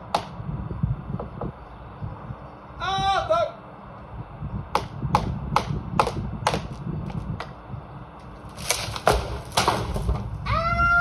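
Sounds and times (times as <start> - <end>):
tree crown falling through branches: 8.4 - 10.4
wood cracking and breaking: 8.4 - 10.4.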